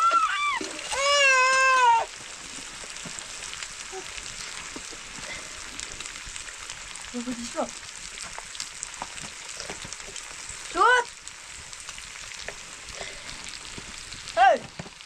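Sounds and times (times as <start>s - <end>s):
baby crying: 0.0s - 2.2s
food sizzling in pot: 0.0s - 15.0s.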